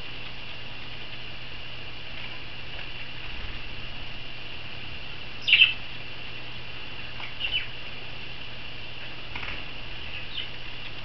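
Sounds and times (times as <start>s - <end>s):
birds chirping: 5.3s - 8.4s, 9.0s - 11.0s
wings fluttering in water: 9.3s - 9.7s.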